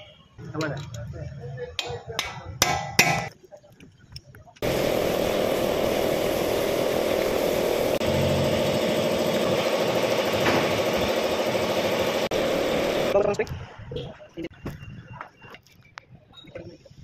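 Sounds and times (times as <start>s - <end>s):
engine running: 4.6s - 13.2s.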